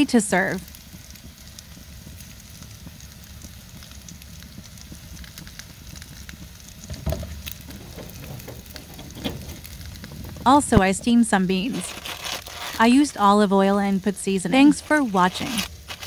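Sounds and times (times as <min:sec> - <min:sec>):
meat sizzling on a grill: 0:00.0 - 0:16.0
low thud: 0:06.8 - 0:11.4.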